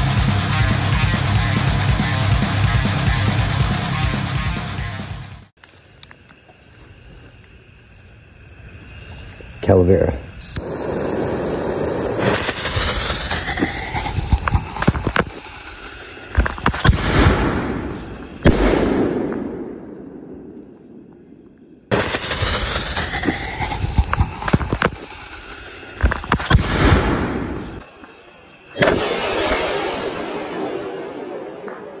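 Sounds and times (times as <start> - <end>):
firework fuse fizzing: 10.4 - 18.8, 21.9 - 31.7
firework hiss: 10.4 - 18.8, 21.9 - 31.8
firework bangs and pops: 10.6 - 20.6, 21.9 - 28.1, 28.7 - 32.0.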